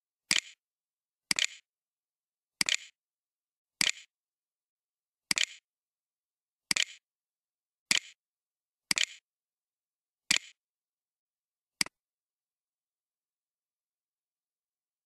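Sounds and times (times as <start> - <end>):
computer mouse clicking: 0.3 - 0.6, 1.3 - 1.6, 2.6 - 3.0, 3.8 - 4.1, 5.3 - 5.6, 6.7 - 7.0, 7.9 - 8.2, 8.9 - 9.2, 10.3 - 10.6.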